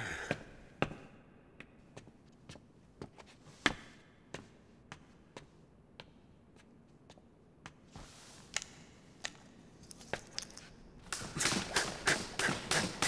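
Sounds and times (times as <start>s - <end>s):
skipping ropes slapping floor: 11.2s - 13.0s.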